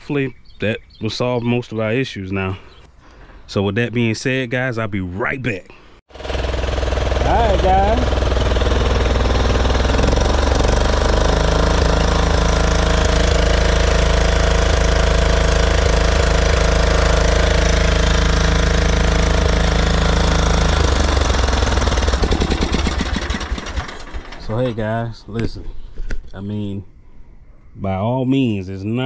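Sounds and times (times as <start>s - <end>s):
small mower engine running: 6.1s - 24.8s.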